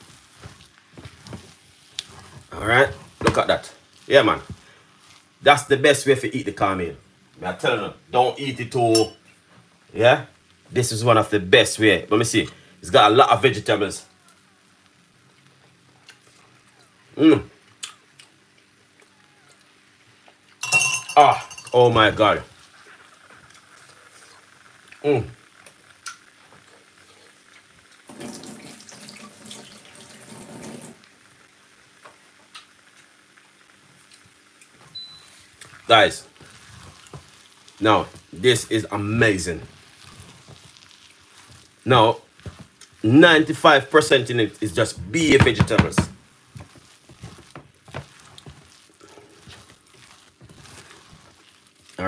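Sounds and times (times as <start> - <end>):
kitchen tap running: 28.0 - 31.0
stirring in a metal pot: 34.1 - 52.0.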